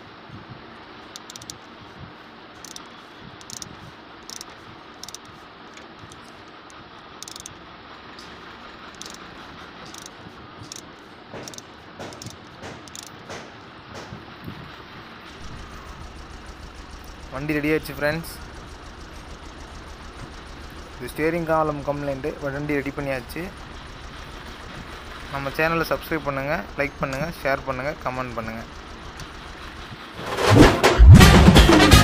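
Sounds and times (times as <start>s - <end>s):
hand tools clicking and rattling: 1.1s - 1.6s, 2.6s - 7.6s, 8.2s - 14.2s.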